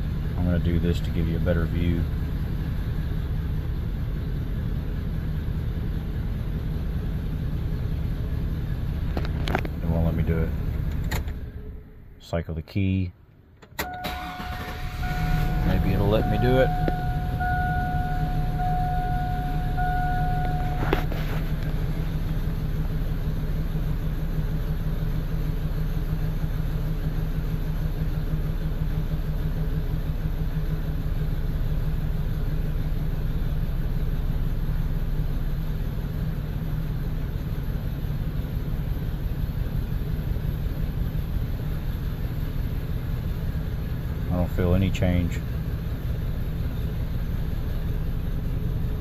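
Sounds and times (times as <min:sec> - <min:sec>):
engine running steadily: 0:00.0 - 0:49.0
steady high beep: 0:13.8 - 0:21.2.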